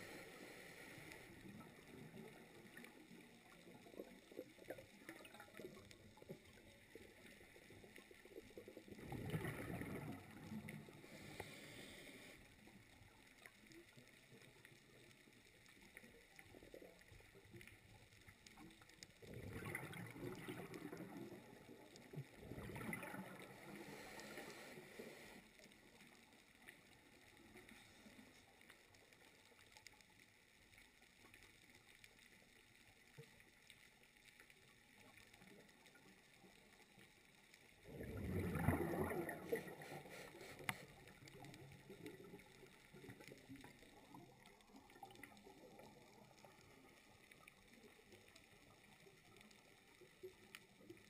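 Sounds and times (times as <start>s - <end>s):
muffled underwater rushing: 0.0s - 12.3s, 19.2s - 25.4s, 37.8s - 44.2s.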